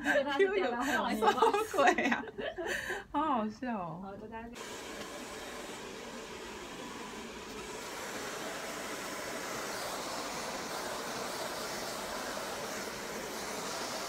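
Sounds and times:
hair dryer blowing: 0:04.6 - 0:14.0.

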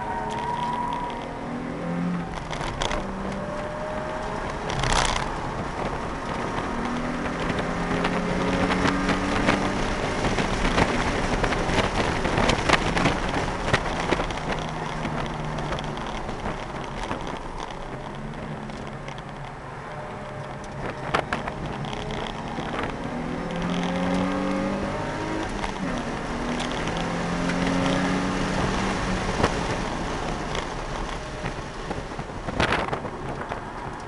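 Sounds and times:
car engine accelerating: 0:00.0 - 0:34.0
road noise inside car: 0:00.0 - 0:34.0
rattles: 0:02.2 - 0:19.6, 0:20.2 - 0:24.4.

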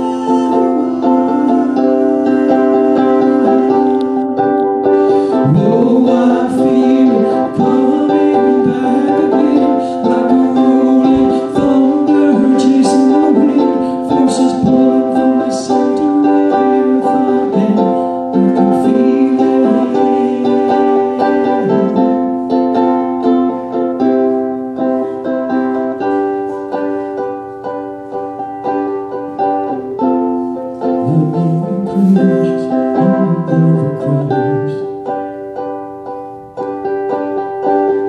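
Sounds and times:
ukulele playing: 0:00.0 - 0:38.0
man singing: 0:05.0 - 0:22.3, 0:30.8 - 0:35.1.

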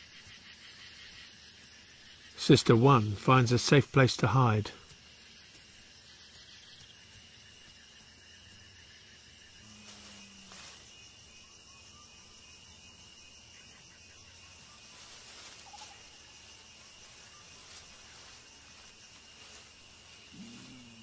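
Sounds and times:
high insect drone: 0:00.0 - 0:21.0
hiss: 0:14.9 - 0:21.0.

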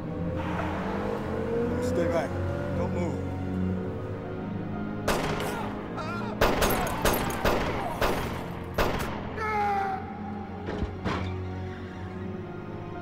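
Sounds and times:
low film score: 0:00.0 - 0:13.0
gunshots: 0:05.1 - 0:05.6, 0:06.4 - 0:09.4.

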